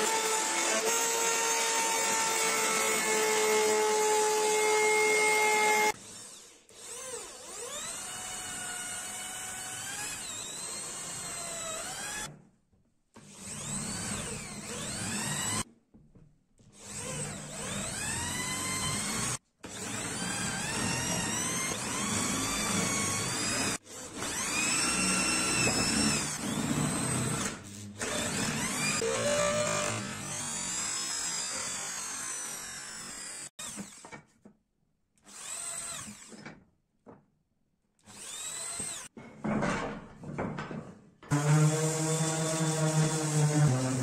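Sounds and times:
electric drill boring into wood: 0:00.0 - 0:12.3, 0:13.2 - 0:15.6, 0:16.8 - 0:34.2, 0:35.2 - 0:36.5, 0:38.0 - 0:39.2.

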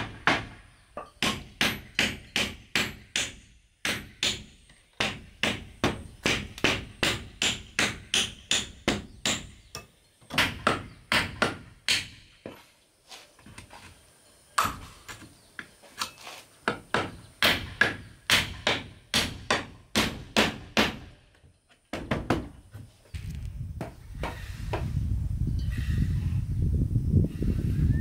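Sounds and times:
hammer striking wood: 0:00.0 - 0:09.6, 0:10.3 - 0:12.6, 0:16.7 - 0:21.1, 0:21.9 - 0:22.6.

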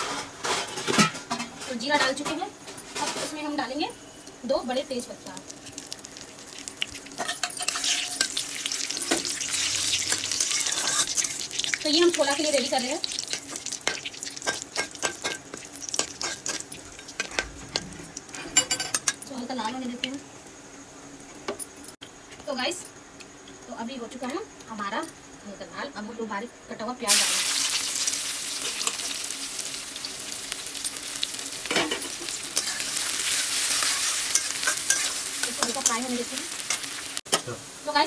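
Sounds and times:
oil sizzling: 0:00.0 - 0:21.8, 0:27.1 - 0:38.0
metal spatula scraping a pan: 0:07.2 - 0:11.8, 0:13.1 - 0:19.1, 0:31.2 - 0:36.1.

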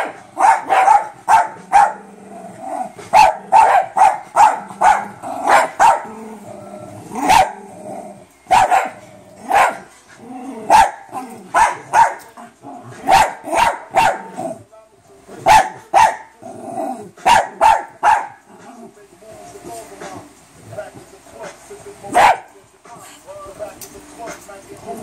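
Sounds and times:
small dogs barking: 0:00.0 - 0:06.2, 0:07.0 - 0:07.8, 0:08.5 - 0:10.0, 0:10.6 - 0:14.6, 0:15.4 - 0:18.7, 0:22.1 - 0:22.6
dogs growling: 0:00.0 - 0:13.6, 0:16.3 - 0:17.6, 0:18.2 - 0:19.1.

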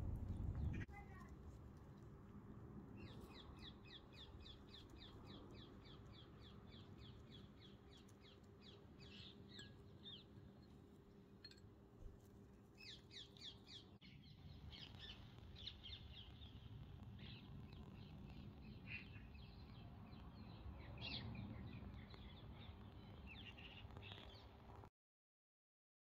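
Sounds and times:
small birds chirping: 0:00.0 - 0:01.2, 0:02.9 - 0:11.6, 0:12.2 - 0:24.8
low background rumble: 0:00.0 - 0:03.6.

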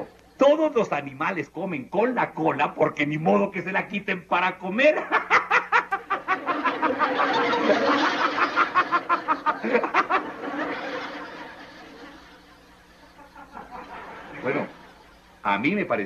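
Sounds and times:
man laughing heartily: 0:04.9 - 0:15.2.

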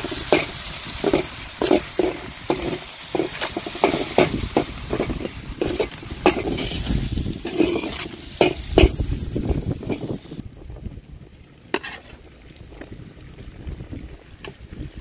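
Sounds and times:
spatula scraping metal pan: 0:00.0 - 0:10.2, 0:11.8 - 0:12.2
onions sizzling in hot oil: 0:00.0 - 0:10.6, 0:11.6 - 0:13.2.

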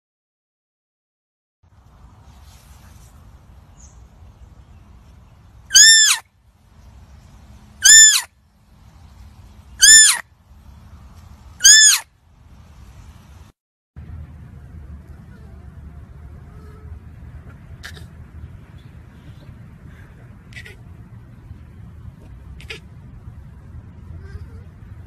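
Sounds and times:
deer fawn bleating: 0:05.7 - 0:06.2, 0:07.8 - 0:08.3, 0:09.8 - 0:10.2, 0:11.6 - 0:12.0
faint low rumble: 0:12.2 - 0:25.0.

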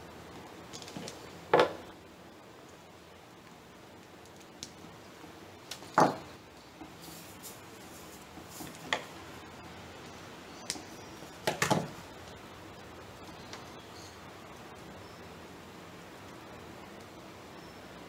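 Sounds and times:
foliage rustling: 0:06.8 - 0:09.1.

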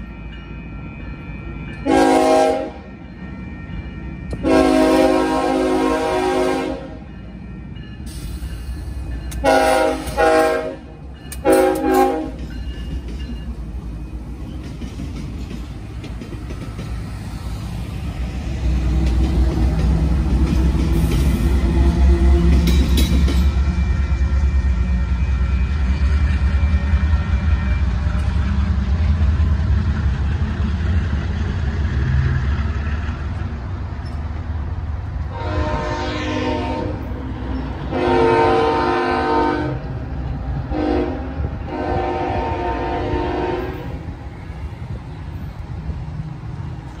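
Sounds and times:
low train rumble: 0:00.0 - 0:47.0
locomotive air horn blasts: 0:01.8 - 0:02.9, 0:04.4 - 0:07.0, 0:09.4 - 0:12.4, 0:35.3 - 0:37.1, 0:37.9 - 0:39.9, 0:40.7 - 0:44.0.

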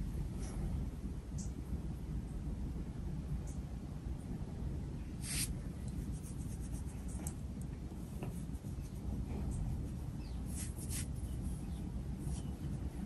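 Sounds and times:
ceiling fan air rush: 0:00.0 - 0:13.0.

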